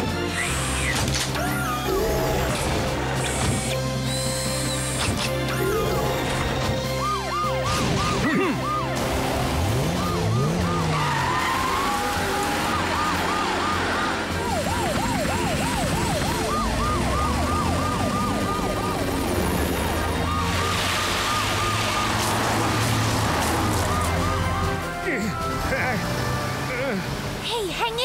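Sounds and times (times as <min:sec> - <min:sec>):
cartoon sirens yelping: 0:00.4 - 0:02.8, 0:05.4 - 0:25.4.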